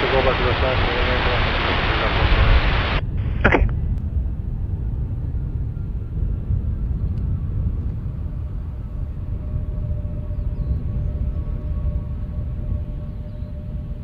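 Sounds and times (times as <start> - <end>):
distant jet engines rumbling: 0.0 - 14.0
faint engine whine: 0.0 - 14.0
radio squelch blip: 3.4 - 3.7.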